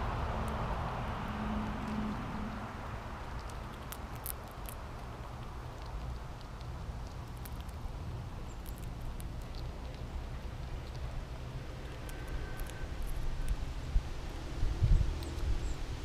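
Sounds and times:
low rumble: 0.0 - 4.1
squirrel cracking seeds: 0.1 - 16.0.

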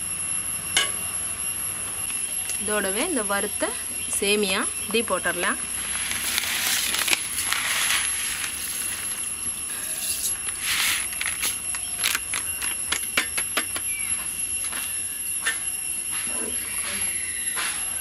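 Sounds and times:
plastic packet crinkling: 5.9 - 9.3, 10.0 - 13.0.

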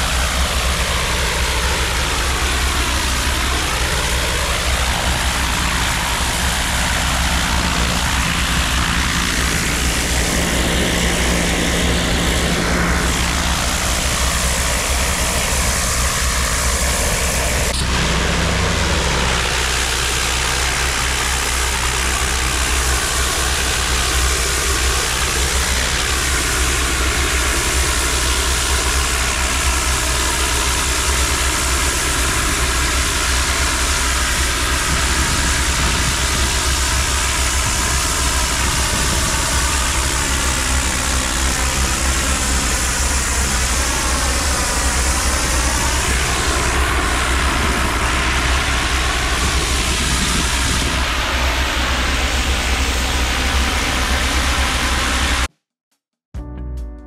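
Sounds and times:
steam cleaning machine engine: 0.0 - 55.5
high-pressure jet hissing: 18.9 - 55.3.

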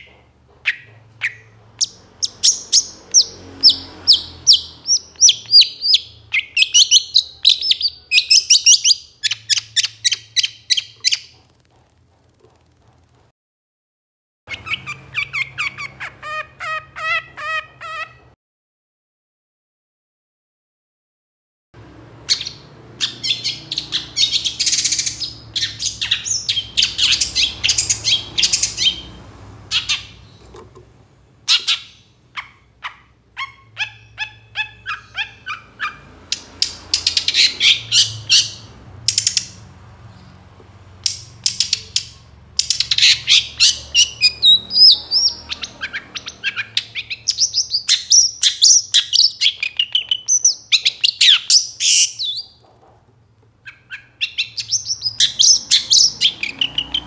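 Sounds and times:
bird singing harsh chattering: 0.0 - 11.5, 14.5 - 18.3, 22.2 - 30.6, 31.5 - 40.3, 41.0 - 52.6, 53.6 - 57.0.

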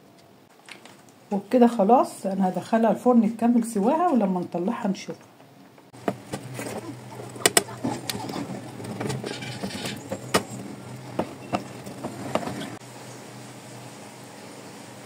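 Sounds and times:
knife scraping a metal pan: 7.8 - 10.6.

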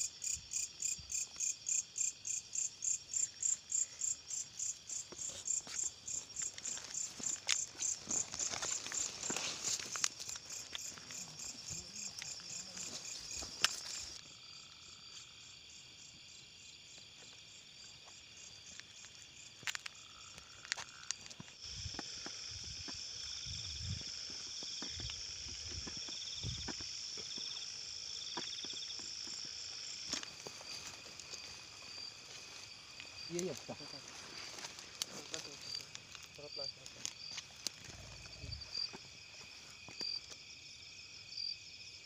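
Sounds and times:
crickets and insects trilling: 0.0 - 42.0
fast pulsing insect trill: 19.3 - 42.0.

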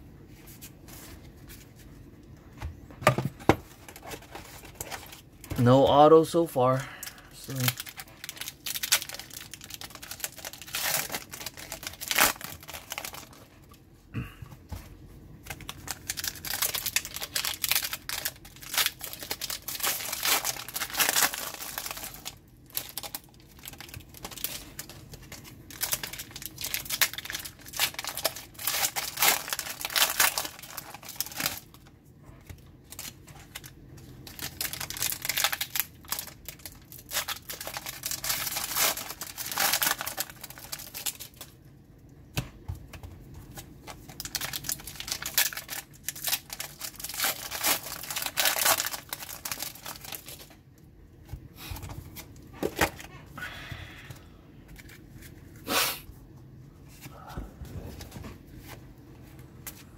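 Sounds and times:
foil wrappers crinkling and tearing: 3.7 - 13.8, 15.4 - 41.6, 43.4 - 50.6.

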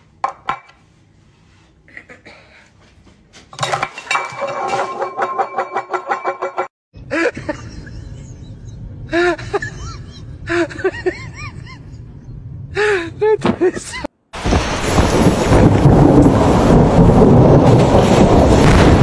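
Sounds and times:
loud dense rumbling: 14.5 - 19.0.

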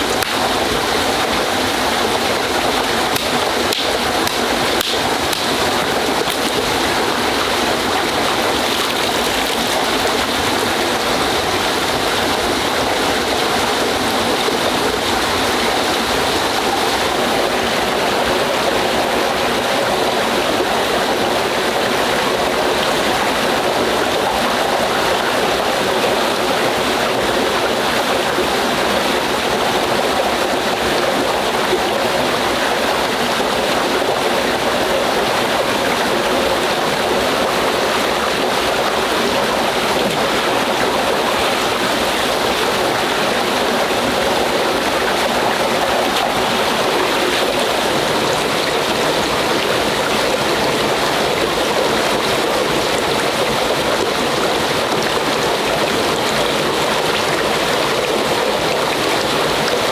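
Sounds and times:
running water rushing: 0.0 - 59.9.

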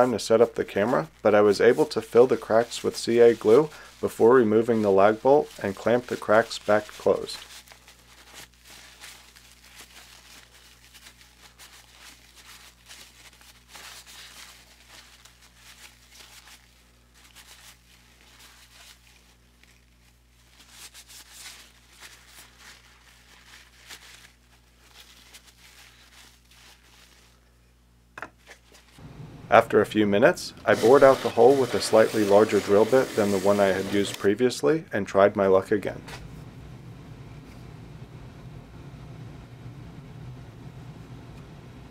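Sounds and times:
paper towel rubbing wood: 0.0 - 27.2, 30.2 - 34.5
low steady hum: 28.8 - 32.2, 33.6 - 41.9.

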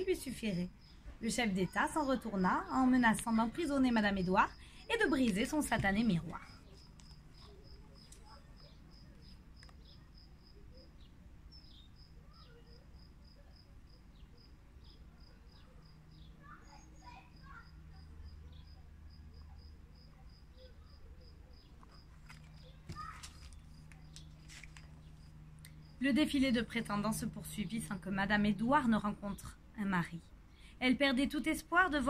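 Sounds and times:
cricket chirping: 0.0 - 27.4
book page turning: 21.8 - 25.1.

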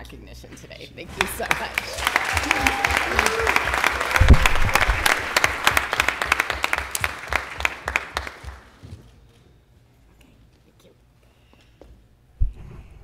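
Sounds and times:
audience applauding: 1.1 - 8.8.

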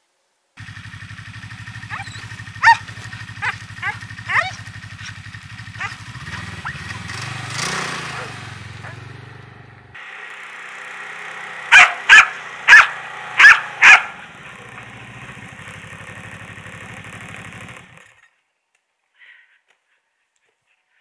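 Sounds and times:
snowmobile engine running: 0.6 - 18.2
dog barking: 1.8 - 6.9, 8.0 - 9.1, 11.7 - 14.3.

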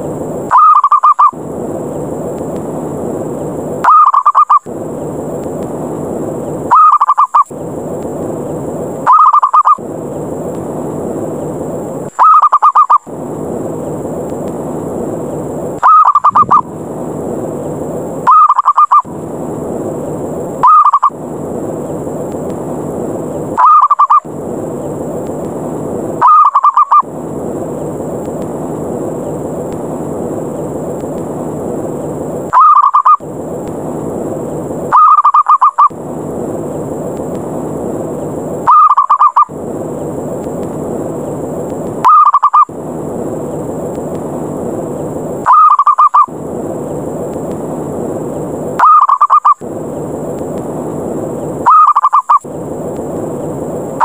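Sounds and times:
steady rushing noise: 0.0 - 54.0
dove pulsing coo: 0.5 - 1.3, 3.9 - 4.6, 6.7 - 7.4, 9.1 - 9.8, 12.2 - 13.0, 15.8 - 16.6, 18.3 - 19.0, 23.6 - 24.2, 26.2 - 27.0, 38.7 - 39.5, 42.1 - 42.7, 45.5 - 46.3, 48.8 - 49.6, 51.6 - 52.4.

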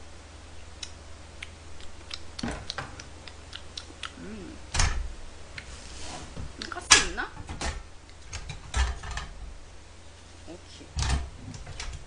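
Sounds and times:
mouth clicks while chewing: 0.8 - 4.2
person humming: 3.8 - 4.7.

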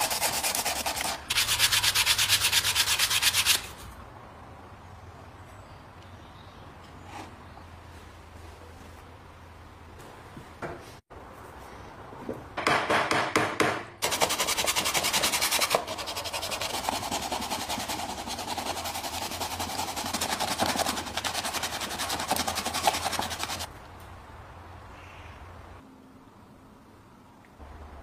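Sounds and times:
abrasive tool rubbing wood: 14.0 - 23.7.

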